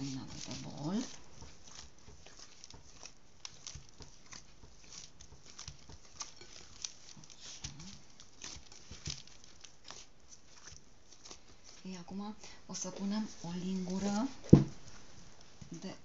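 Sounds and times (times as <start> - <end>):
hand scraping bowl sides: 0.0 - 12.0
dough patting and squelching: 0.0 - 16.0.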